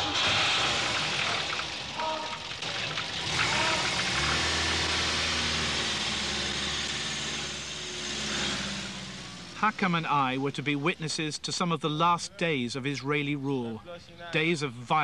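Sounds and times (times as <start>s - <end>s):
car engine running: 0.0s - 11.2s
road noise inside car: 0.0s - 11.6s
deep steady engine hum: 0.0s - 15.0s.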